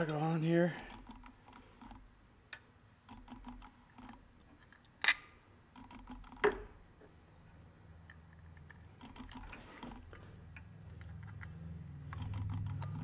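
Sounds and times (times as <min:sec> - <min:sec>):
light clicks and handling noises: 0:06.3 - 0:13.0
sharp metal clicks: 0:10.5 - 0:13.0.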